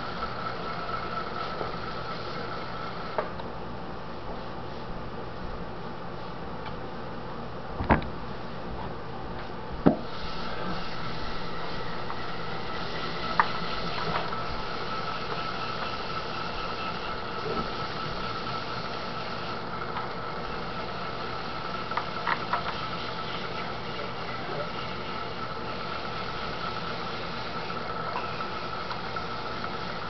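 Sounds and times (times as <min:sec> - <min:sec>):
potter's wheel motor whining: 0:00.0 - 0:03.5, 0:10.0 - 0:30.0.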